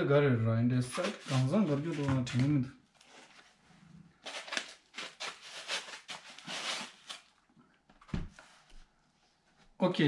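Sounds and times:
packaging rustling and scraping: 0:00.9 - 0:03.6, 0:04.2 - 0:07.4.

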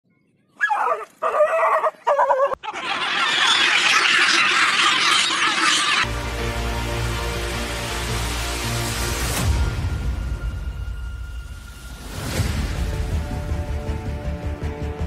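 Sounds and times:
shrill animal cries: 0:00.6 - 0:06.0.

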